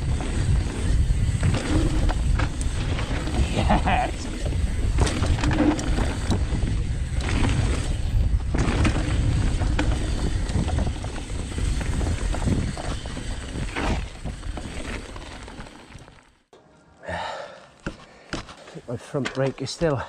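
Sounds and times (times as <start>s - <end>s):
wind buffeting microphone: 0.0s - 14.4s
tyres rolling over dirt: 0.0s - 16.4s
bike clicks and rattles: 0.0s - 16.5s, 17.8s - 19.9s.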